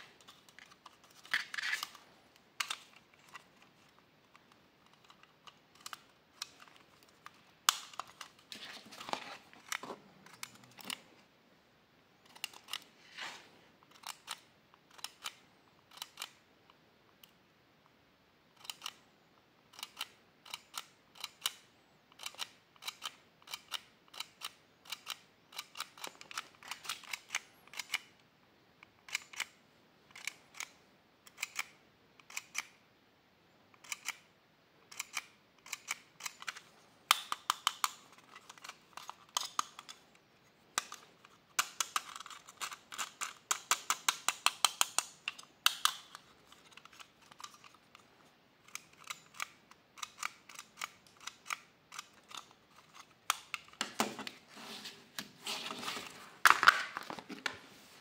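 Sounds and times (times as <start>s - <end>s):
plastic toy dial clicking: 19.7s - 28.1s, 41.6s - 47.8s.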